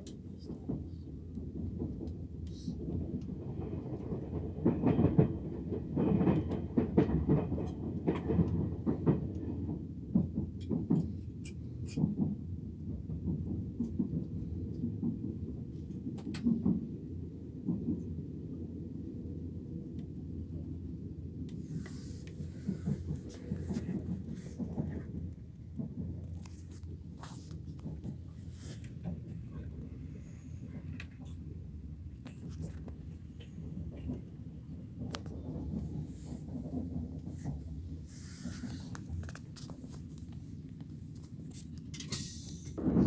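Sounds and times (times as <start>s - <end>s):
train low rumble: 0.0s - 43.0s.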